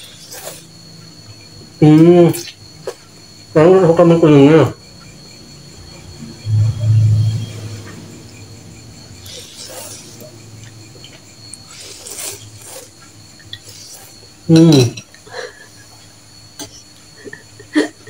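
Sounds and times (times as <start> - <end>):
person slurping noodles: 0.0 - 0.7, 9.2 - 10.3, 11.7 - 14.8
cutlery clinking against bowl: 14.6 - 15.2.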